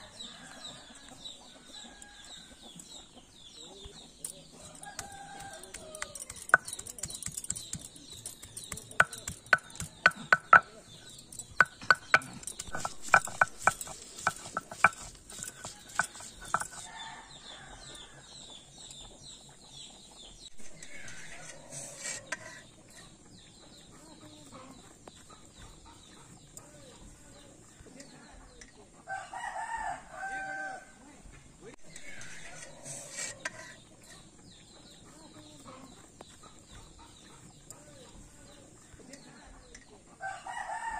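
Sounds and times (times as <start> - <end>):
vegetable grated on stone slab: 11.5 - 17.0, 20.6 - 23.1, 31.9 - 34.3.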